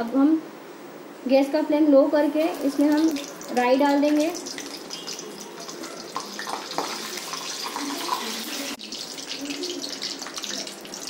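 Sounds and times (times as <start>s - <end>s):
hot oil sizzling: 2.2s - 11.0s.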